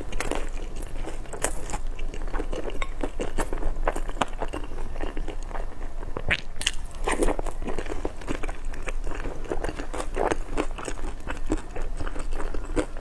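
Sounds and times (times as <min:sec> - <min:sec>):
person chewing with wet mouth sounds: 0:00.0 - 0:13.0
biting into food: 0:06.2 - 0:13.0.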